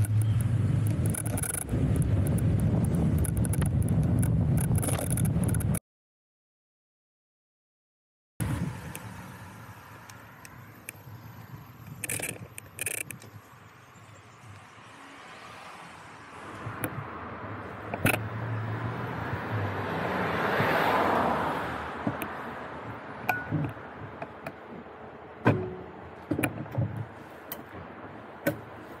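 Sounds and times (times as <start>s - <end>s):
car passing: 14.4s - 24.2s.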